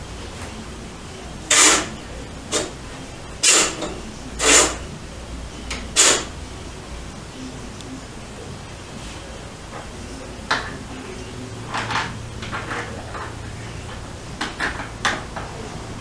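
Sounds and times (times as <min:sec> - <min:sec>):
low room hum: 0:00.0 - 0:16.0
curtains sliding along rail: 0:04.4 - 0:04.8.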